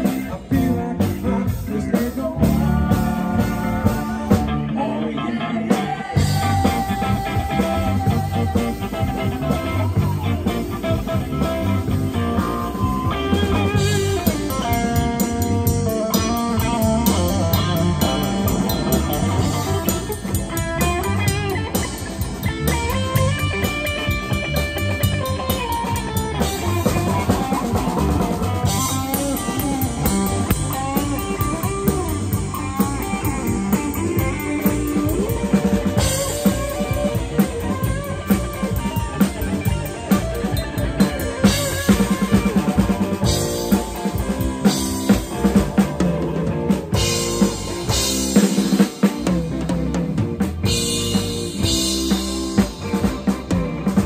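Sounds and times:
drum kit: 0.0s - 4.8s, 5.6s - 54.0s
electric guitar lead: 0.0s - 54.0s.

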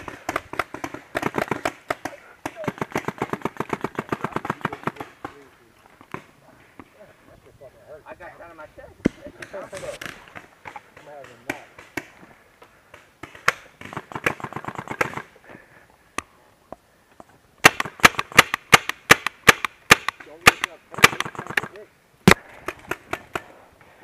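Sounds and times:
paintball marker firing: 0.0s - 5.4s, 10.6s - 12.2s, 12.9s - 15.3s, 17.6s - 23.5s.

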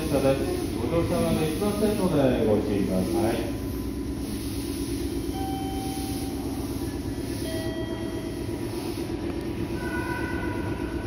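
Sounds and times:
electric train equipment humming: 0.0s - 11.0s
faint high tones: 9.7s - 11.0s.

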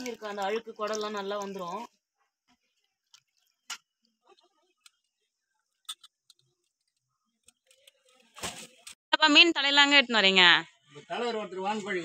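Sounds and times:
fish rinsed in metal bowl: 0.0s - 8.9s.

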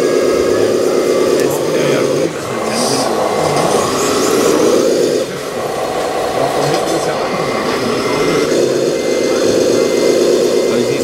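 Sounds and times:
model truck mechanical drive: 0.0s - 11.0s.

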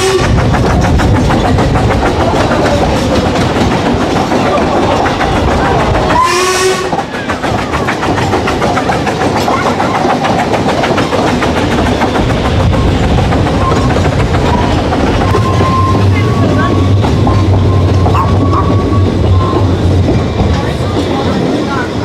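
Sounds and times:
train wheels clattering over rail joints: 0.0s - 22.0s
steam whistle blast: 6.1s - 7.0s.

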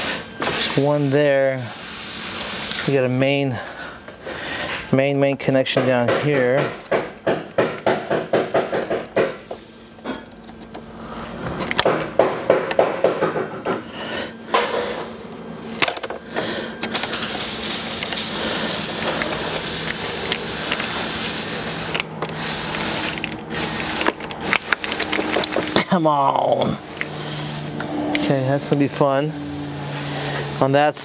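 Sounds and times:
steady hiss: 0.0s - 3.8s, 16.9s - 31.0s
plastic and metal parts clicking: 21.8s - 25.9s.

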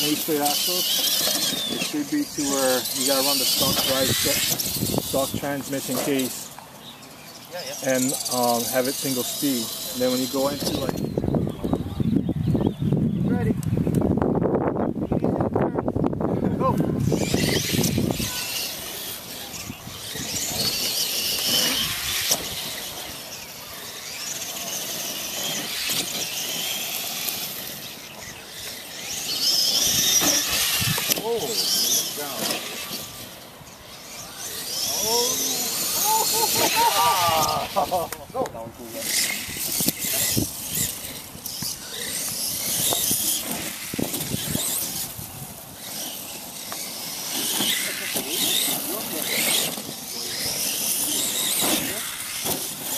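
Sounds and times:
toy truck electric motors whining: 0.0s - 12.8s, 16.8s - 52.9s.

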